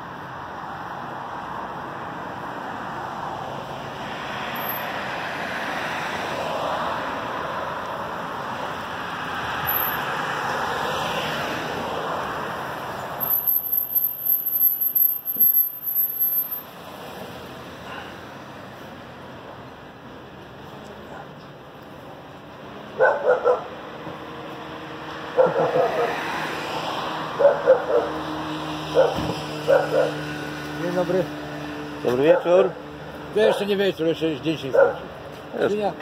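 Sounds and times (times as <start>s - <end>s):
cars passing: 0.0s - 36.0s.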